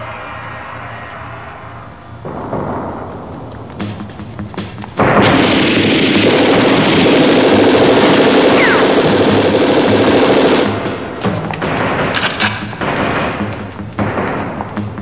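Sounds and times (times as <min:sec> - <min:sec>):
automatic gunfire: 0:05.0 - 0:14.6.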